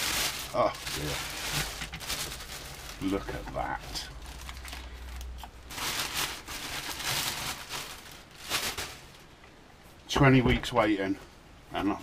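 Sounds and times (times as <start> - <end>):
plastic bag rustling: 0.0 - 9.4.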